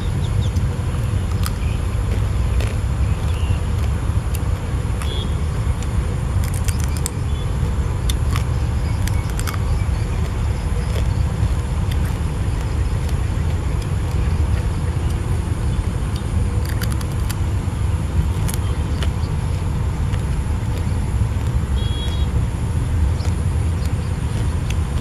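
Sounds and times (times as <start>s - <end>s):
wind buffeting microphone: 0.0s - 25.0s
faint sharp clicks: 0.4s - 7.4s, 8.1s - 15.2s.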